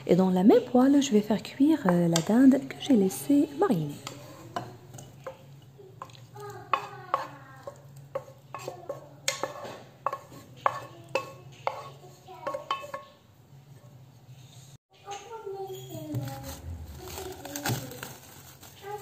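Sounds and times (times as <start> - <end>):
wooden spatula scraping frying pan: 3.7 - 5.4, 6.6 - 13.2.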